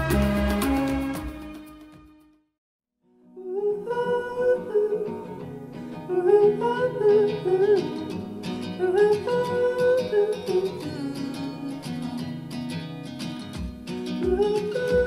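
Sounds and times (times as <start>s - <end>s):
low bass beats: 0.0s - 1.6s
plucked guitar chords: 0.0s - 2.0s, 3.2s - 15.0s
wordless vocal melody: 3.4s - 12.5s, 14.2s - 15.0s.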